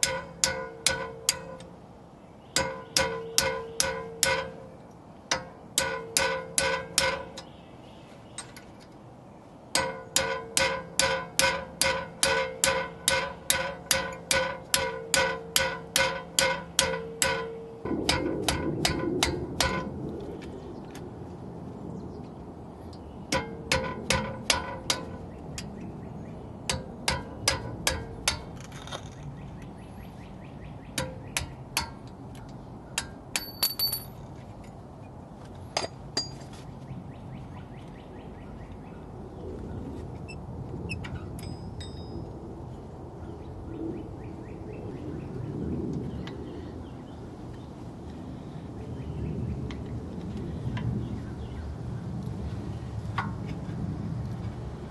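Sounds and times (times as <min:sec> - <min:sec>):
hammer tapping metal punch: 0:00.0 - 0:01.7, 0:02.6 - 0:04.7, 0:05.3 - 0:07.5, 0:09.7 - 0:19.8, 0:26.7 - 0:28.5, 0:33.0 - 0:34.2.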